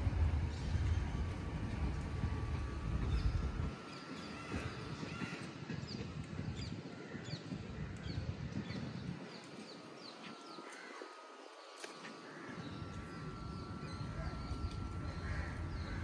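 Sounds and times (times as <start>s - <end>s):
low rumble: 0.0s - 5.0s
small birds chirping: 0.0s - 16.0s
steady background hiss: 0.0s - 16.0s.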